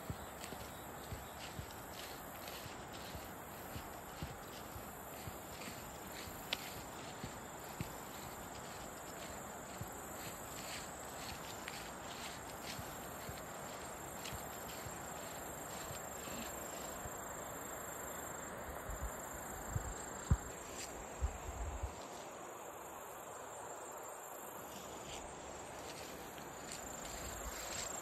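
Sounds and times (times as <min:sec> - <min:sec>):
insects singing high-pitched: 0:00.0 - 0:17.2
outdoor background hiss: 0:00.0 - 0:28.0.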